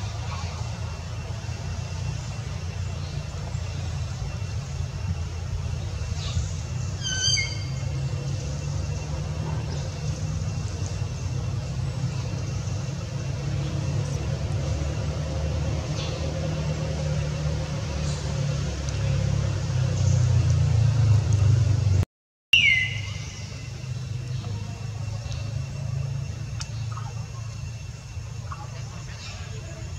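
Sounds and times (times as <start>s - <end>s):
low background rumble: 0.0s - 22.0s.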